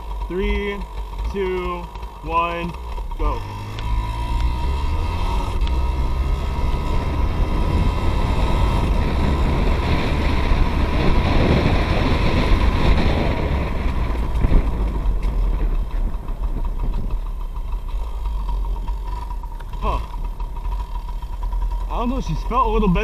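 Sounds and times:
two-stroke engine accelerating: 0:00.0 - 0:23.0
wind rumble on microphone: 0:02.6 - 0:18.9.

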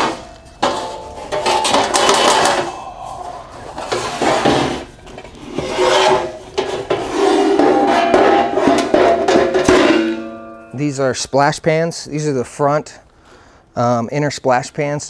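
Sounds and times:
steel ringing: 0:00.0 - 0:05.2, 0:06.0 - 0:11.3
steel parts scraping together: 0:00.0 - 0:10.8.

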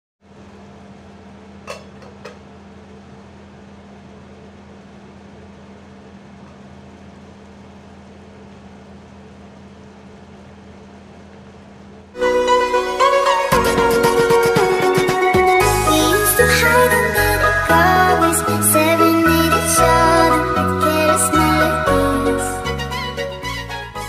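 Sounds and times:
cooktop and cooling fan humming: 0:00.2 - 0:12.2
music: 0:12.2 - 0:24.0.

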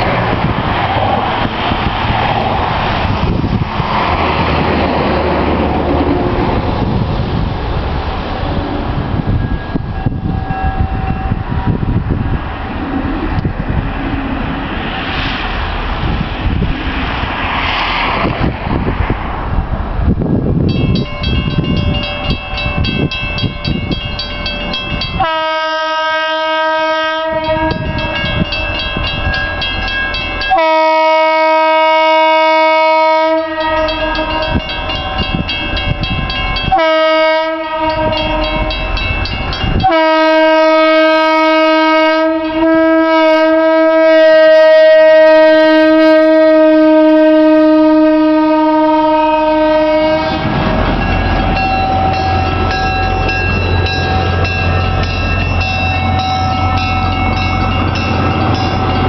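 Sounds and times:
rail car low running rumble: 0:00.0 - 0:59.0
train horn blasts: 0:25.0 - 0:28.6, 0:30.2 - 0:36.0, 0:36.6 - 0:51.1.

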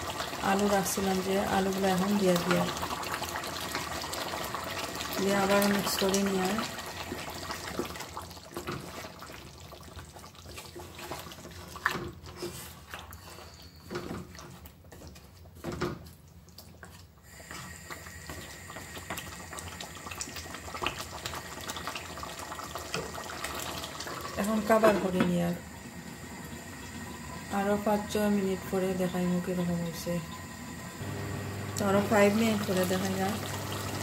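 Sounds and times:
thick sauce bubbling in pot: 0:00.0 - 0:24.9.

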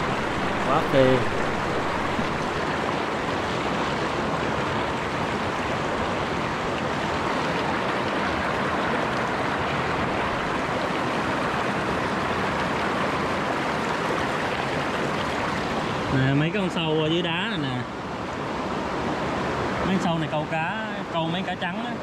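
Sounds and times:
stream rushing over boulders: 0:00.0 - 0:22.0.

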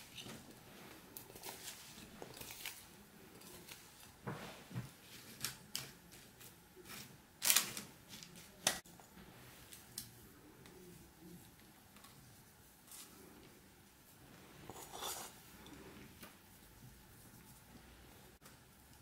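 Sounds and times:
spatula scraping and knocking: 0:14.6 - 0:15.8.

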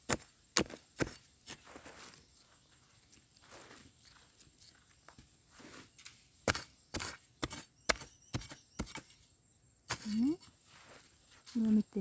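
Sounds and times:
blade chopping into hard earth: 0:00.0 - 0:01.6, 0:06.4 - 0:09.1
soil scraping: 0:00.0 - 0:12.0.

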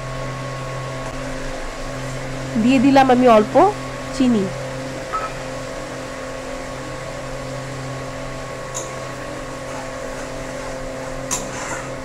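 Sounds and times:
steady electric hum: 0:00.0 - 0:12.0.

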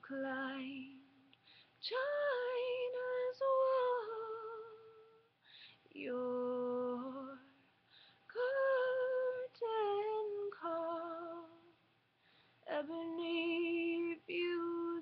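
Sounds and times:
woman singing unaccompanied: 0:00.0 - 0:05.3, 0:05.9 - 0:07.6, 0:08.3 - 0:11.8, 0:12.6 - 0:15.0.

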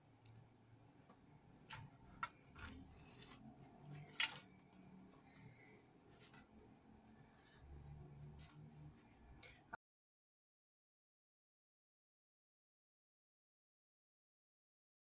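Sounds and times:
faint pastry sheet rustling: 0:01.7 - 0:09.5.

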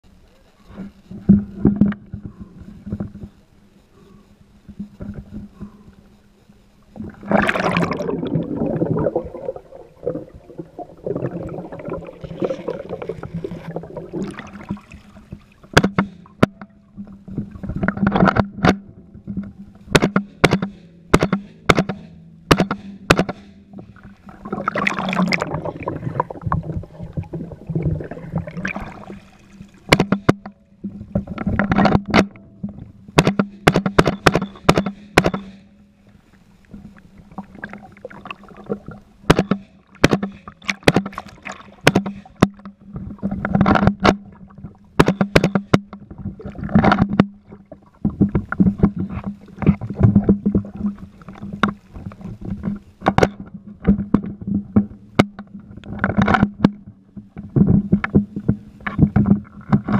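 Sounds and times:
faint steady hum: 0:00.0 - 0:59.9
water sloshing and gurgling: 0:04.0 - 0:59.9
muffled underwater gunshots: 0:15.7 - 0:16.6, 0:19.9 - 0:23.6, 0:29.9 - 0:30.5, 0:33.2 - 0:35.6, 0:39.3 - 0:41.2.

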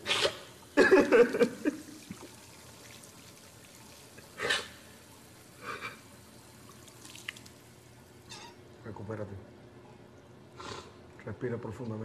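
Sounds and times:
water splashing: 0:01.3 - 0:05.3, 0:06.5 - 0:07.8.

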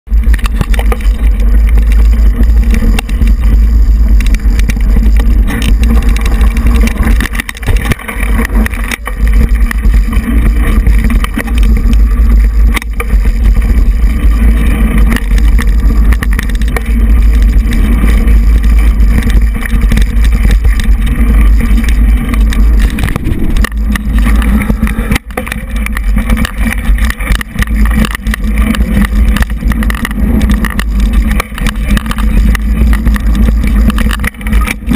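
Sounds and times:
bike knocking and rattling: 0:00.1 - 0:34.9
wind buffeting microphone: 0:00.1 - 0:34.9.

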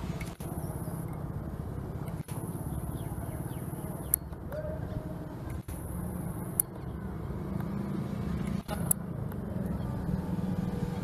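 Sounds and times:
sharp tick: 0:06.5 - 0:06.8.

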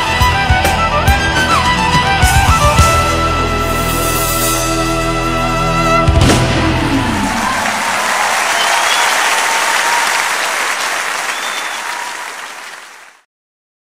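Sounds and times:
audience applauding: 0:06.9 - 0:13.2.

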